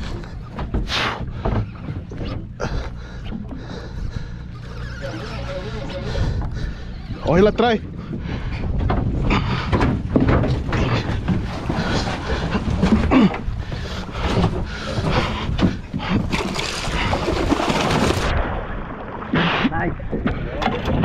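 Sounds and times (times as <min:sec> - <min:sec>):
water slapping against hull: 0:00.0 - 0:21.0
wind buffeting microphone: 0:05.1 - 0:18.9
fish thrashing and splashing: 0:10.3 - 0:19.6.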